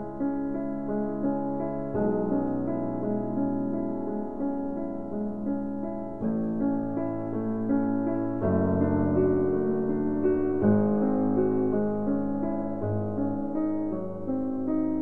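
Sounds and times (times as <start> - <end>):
slow piano chords: 0.0 - 15.0.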